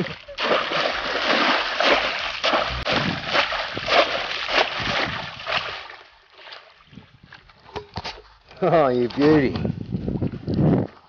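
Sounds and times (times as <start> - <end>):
scoop splashing through water: 0.0 - 7.0.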